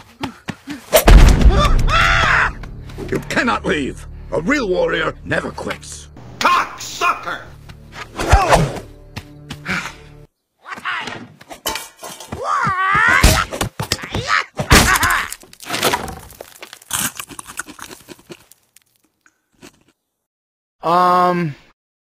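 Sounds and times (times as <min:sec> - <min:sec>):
music: 0:01.6 - 0:10.3
wood breaking crashes: 0:14.7 - 0:17.0.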